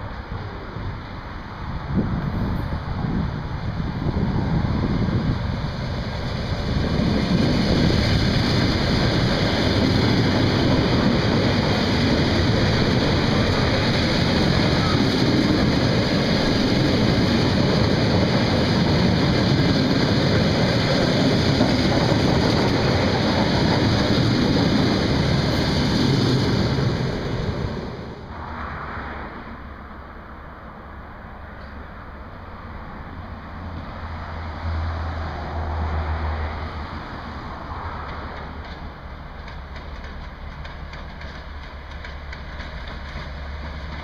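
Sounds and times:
rushing air: 0.0s - 38.6s
train wheels rumbling on rails: 0.0s - 44.0s.

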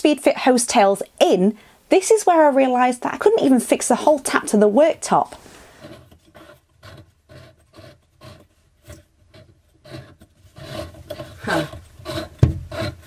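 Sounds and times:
nut scraping on threads: 3.0s - 13.0s.

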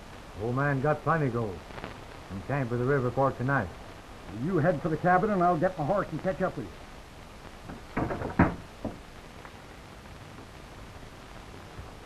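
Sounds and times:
steady hiss: 0.0s - 12.0s
knocks: 7.7s - 9.0s.

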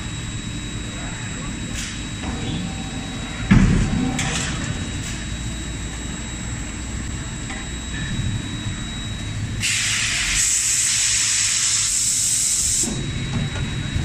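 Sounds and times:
faint high whine: 0.0s - 14.0s
machinery hum: 0.0s - 14.0s
compressed air hissing: 9.6s - 12.9s.

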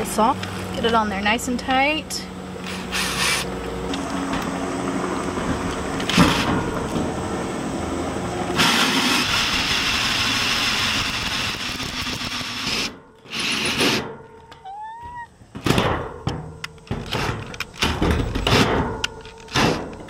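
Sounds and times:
saw grinding metal: 2.6s - 3.5s.

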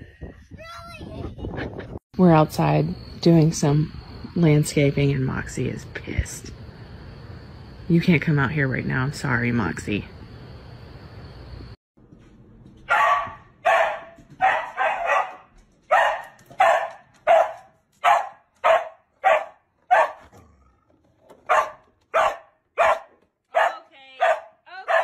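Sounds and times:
dog barking: 12.9s - 20.3s, 21.5s - 25.0s.

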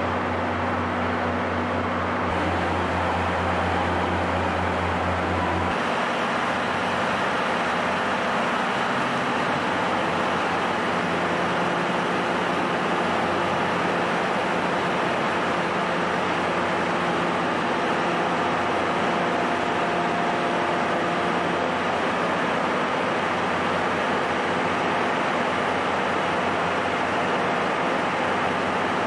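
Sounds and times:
low hum: 0.0s - 20.6s
idling diesel engines drone: 0.0s - 29.0s.

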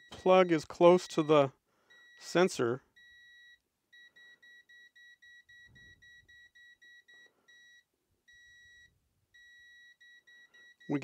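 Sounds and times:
multimeter buzzer beeping: 3.0s - 11.0s.

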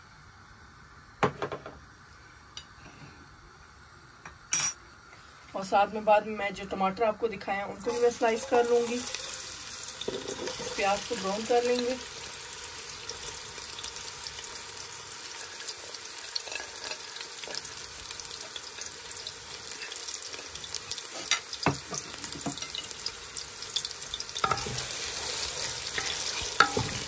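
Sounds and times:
onions sizzling in hot oil: 5.6s - 27.0s.

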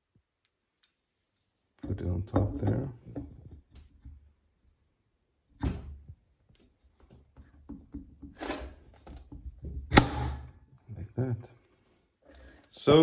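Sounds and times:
metal clunks and scrapes: 7.8s - 9.4s.

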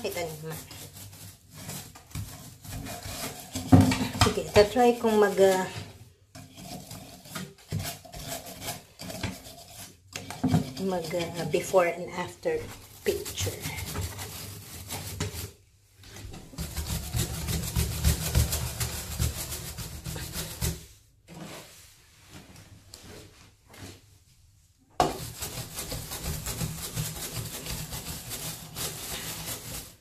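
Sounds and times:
scrubbing brush on bath surface: 0.0s - 30.0s.

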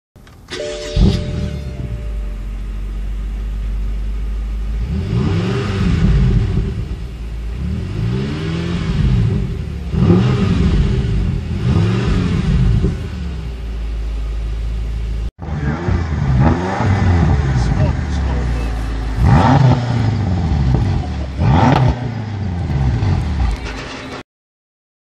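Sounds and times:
car engine idling and revving: 0.2s - 24.2s.

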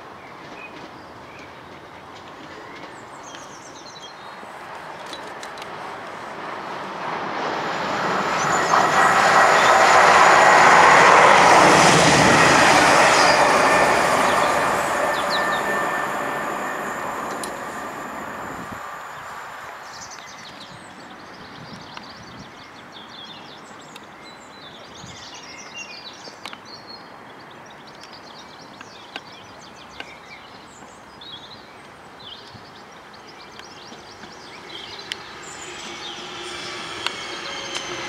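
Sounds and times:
electric train whine: 4.8s - 20.6s, 33.5s - 38.0s.

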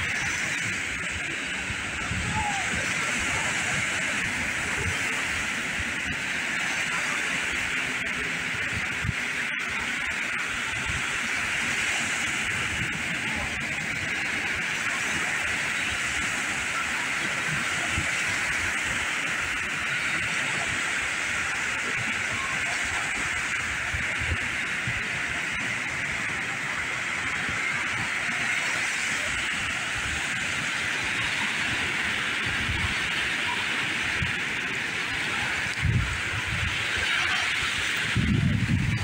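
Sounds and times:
ocean surf breaking: 0.0s - 39.0s.

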